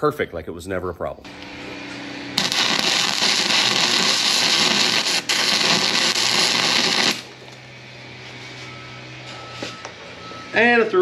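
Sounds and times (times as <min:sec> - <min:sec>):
welding arc crackling: 0:02.4 - 0:07.6.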